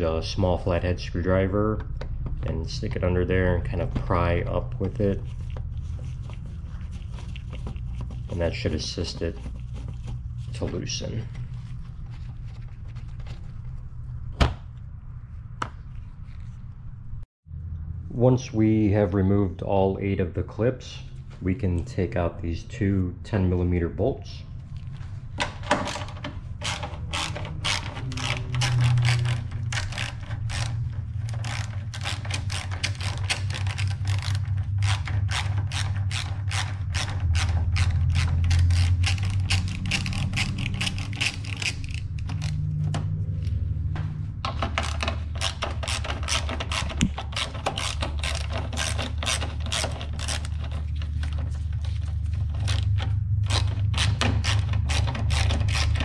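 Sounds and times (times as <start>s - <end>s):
ratchet wrench clicking: 26.6s - 42.6s.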